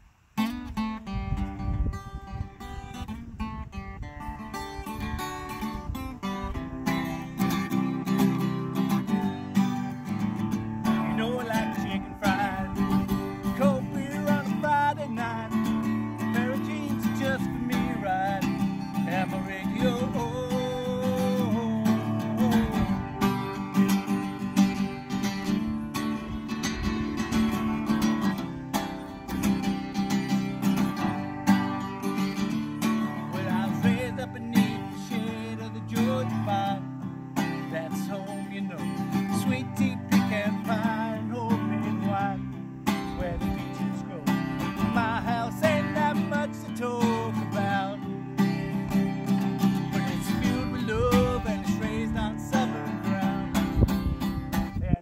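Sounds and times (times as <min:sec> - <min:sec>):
acoustic guitar strumming: 0:00.0 - 0:55.0
man singing: 0:06.5 - 0:24.6, 0:30.8 - 0:53.9, 0:54.8 - 0:55.0.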